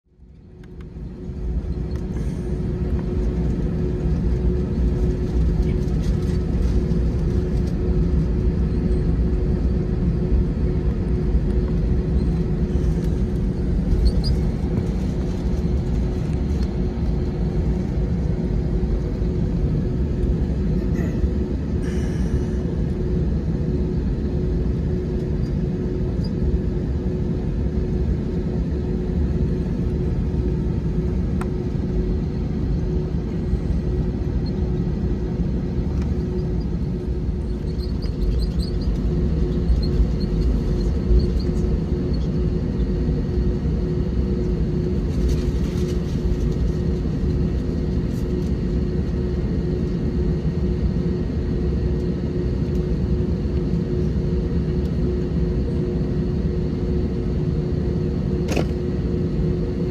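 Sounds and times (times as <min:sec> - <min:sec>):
air-conditioning rumble: 0:00.1 - 0:59.9.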